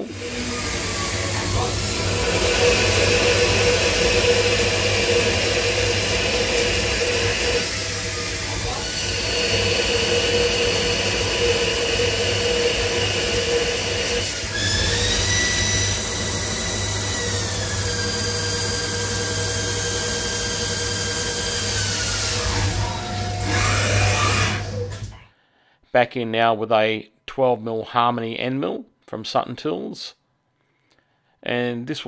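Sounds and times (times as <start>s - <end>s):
lathe spindle whine: 0.0s - 25.1s.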